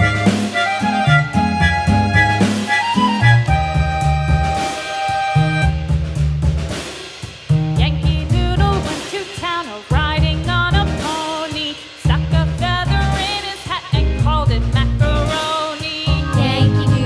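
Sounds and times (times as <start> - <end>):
upbeat background music: 0.0 - 6.4, 12.1 - 17.0.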